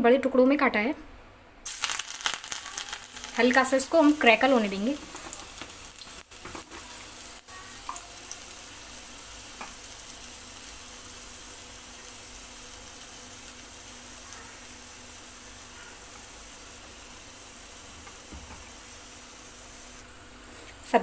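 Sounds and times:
garlic sizzling in hot oil: 1.6s - 21.0s.

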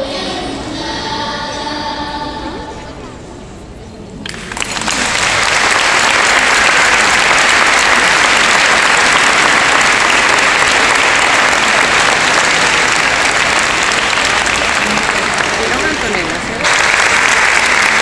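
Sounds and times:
audience applauding: 4.2s - 18.0s.

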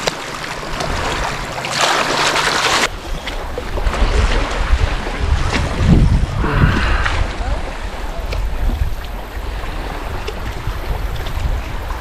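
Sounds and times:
water washing at shore: 0.0s - 12.0s
wind buffeting microphone: 2.8s - 12.0s.

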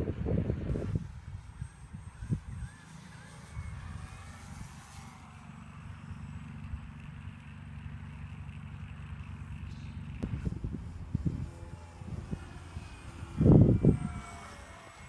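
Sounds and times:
wind rumble on microphone: 0.0s - 5.0s, 10.2s - 14.9s
model plane motor drone: 0.0s - 15.0s.

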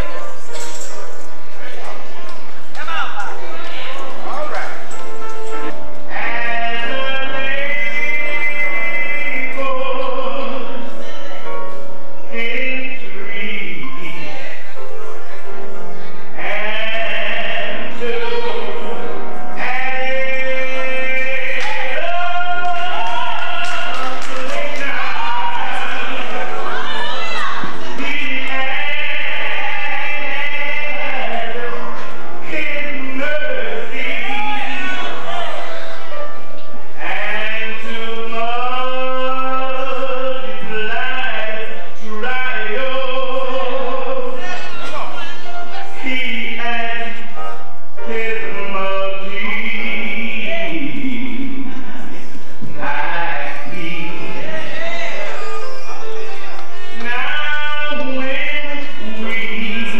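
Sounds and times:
man singing gospel song: 0.0s - 0.4s, 4.7s - 11.4s, 12.1s - 36.1s, 36.8s - 59.9s.

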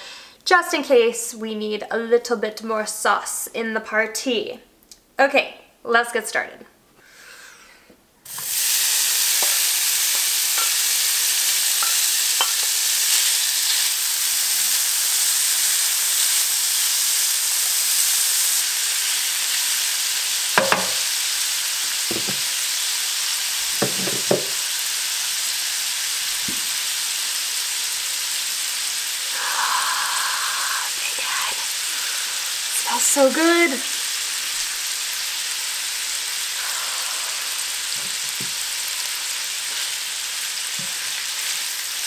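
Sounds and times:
bacon sizzling in a pan: 8.3s - 42.0s
wooden spatula knocking: 20.6s - 21.0s, 22.1s - 22.4s, 23.8s - 24.6s.

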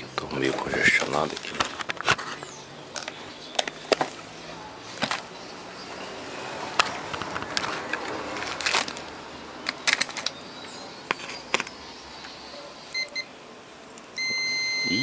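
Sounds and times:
plastic clicks and handling rustle: 0.2s - 4.2s, 6.8s - 10.4s
multimeter beeps: 12.9s - 13.3s, 14.2s - 15.0s.

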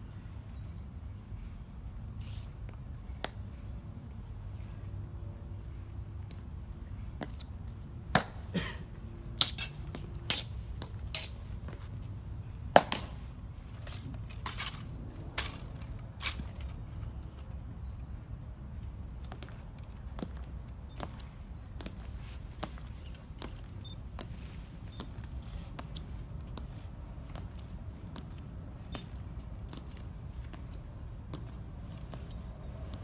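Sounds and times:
metal-tapped heels on stone: 2.2s - 3.4s, 7.2s - 8.7s, 9.4s - 12.0s, 12.7s - 17.9s, 18.8s - 33.0s
marching footsteps: 19.1s - 33.0s.

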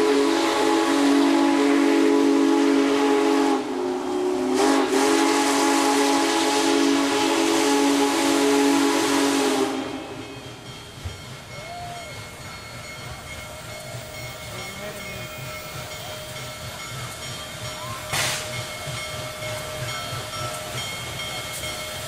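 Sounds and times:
steam whistle chord: 0.0s - 10.6s
steam hissing: 0.0s - 22.0s.

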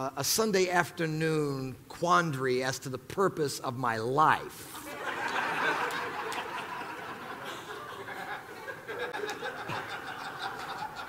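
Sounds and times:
audience laughing: 4.7s - 11.0s.

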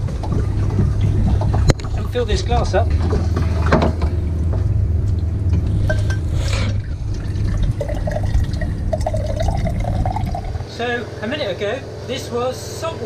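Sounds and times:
low machine hum: 0.0s - 13.0s
water filling a glass: 6.6s - 10.7s.

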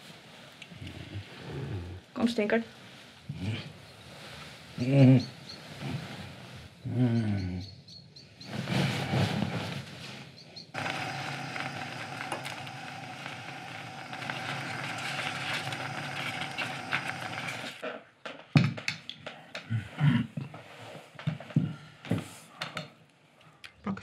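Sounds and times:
porridge cooking hiss: 10.8s - 17.8s.

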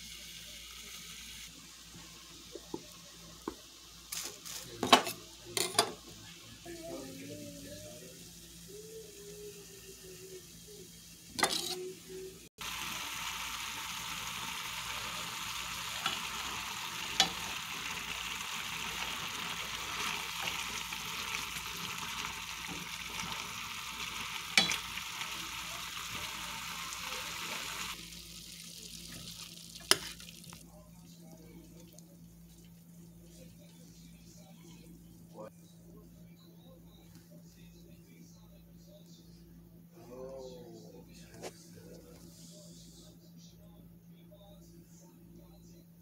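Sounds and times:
food sizzling in pan: 0.0s - 30.6s.

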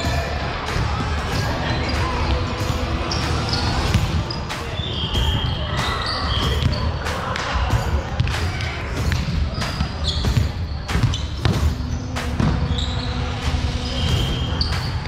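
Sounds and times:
shoes squeaking on floor: 3.1s - 6.9s, 9.5s - 15.0s
volleyball hits and bounces: 5.1s - 12.7s.

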